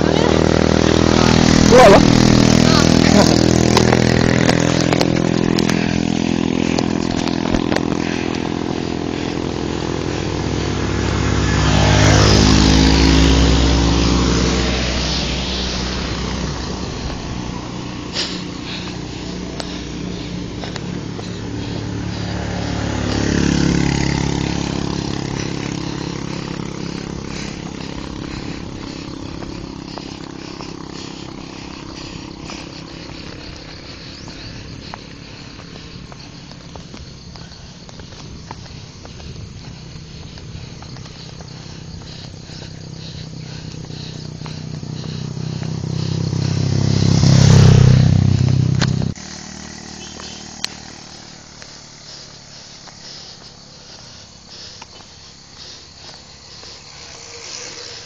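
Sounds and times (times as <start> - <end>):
vehicle engine running: 0.0 - 58.0
vehicles passing: 0.0 - 58.0.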